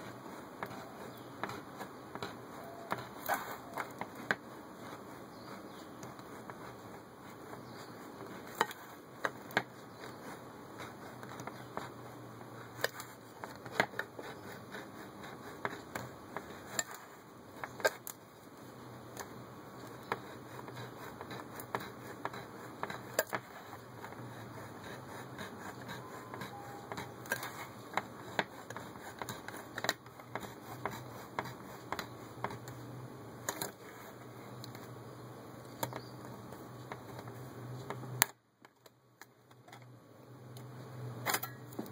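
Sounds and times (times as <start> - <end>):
cutting wheel scraping can rim: 0.0 - 18.1, 19.8 - 32.8.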